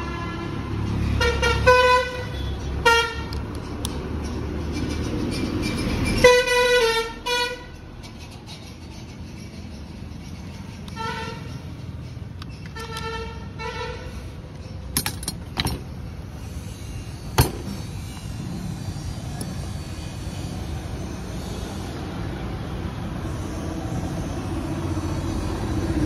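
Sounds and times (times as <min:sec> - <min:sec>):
vehicle horn toots: 0:01.2 - 0:03.4, 0:06.2 - 0:07.8.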